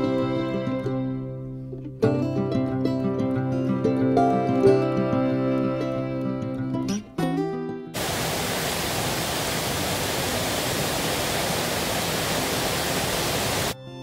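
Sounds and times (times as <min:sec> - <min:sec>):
plucked-string music: 0:00.0 - 0:08.0
waterfall rushing: 0:08.0 - 0:13.8.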